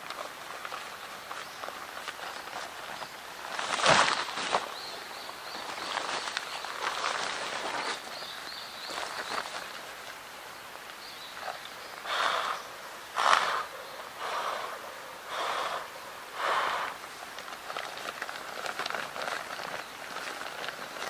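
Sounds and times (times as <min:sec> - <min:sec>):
rustling of a sleeping pad: 0:16.4 - 0:21.0.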